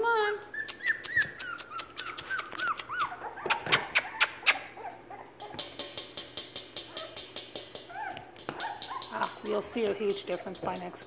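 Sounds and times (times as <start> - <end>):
puppies whining and yipping: 0.4 - 5.7, 7.8 - 9.4
sharp clicks ticking: 5.5 - 7.7.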